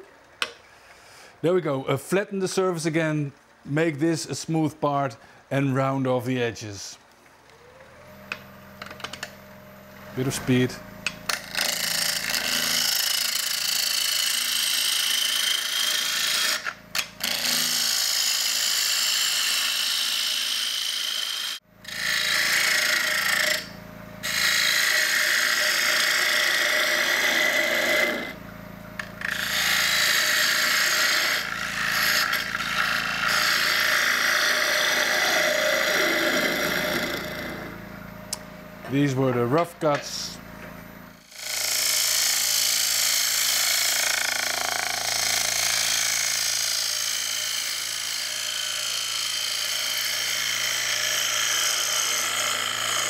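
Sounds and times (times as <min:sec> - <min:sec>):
gouge cutting spinning wood: 0:11.3 - 0:28.4, 0:29.0 - 0:37.8, 0:41.2 - 0:53.0.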